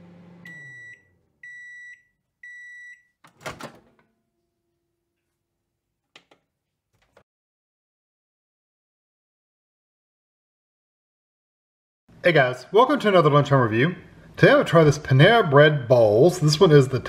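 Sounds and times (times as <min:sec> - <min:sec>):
microwave oven humming: 0:00.0 - 0:01.7
microwave door opening clunk: 0:03.3 - 0:04.0.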